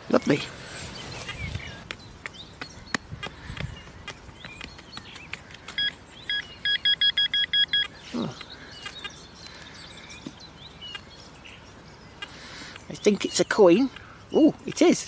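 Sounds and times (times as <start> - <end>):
metal detector beeping: 5.7 - 8.0.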